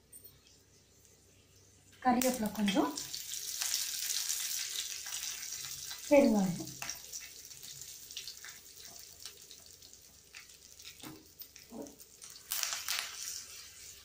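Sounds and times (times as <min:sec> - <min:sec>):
hot oil sizzling: 0:02.0 - 0:14.0
mustard seeds crackling: 0:11.6 - 0:13.6.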